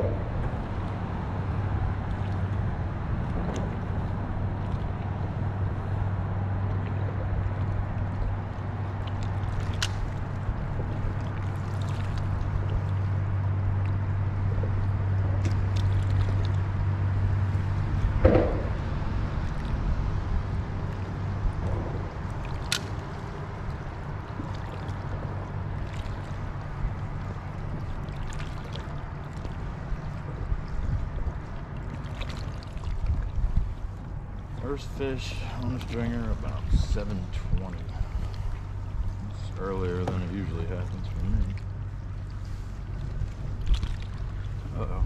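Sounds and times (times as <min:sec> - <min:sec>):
steady low hum: 0:00.0 - 0:45.0
water lapping around a kayak: 0:00.0 - 0:45.0
loud knock: 0:18.2 - 0:18.8.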